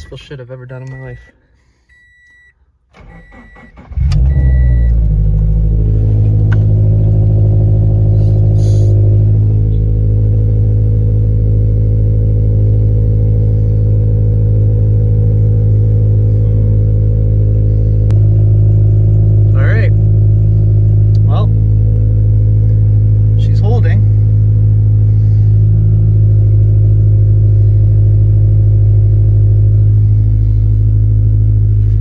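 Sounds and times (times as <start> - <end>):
car engine idling: 0.0 - 32.0
engine cranking: 3.0 - 4.6
short repeating beep: 4.3 - 4.9.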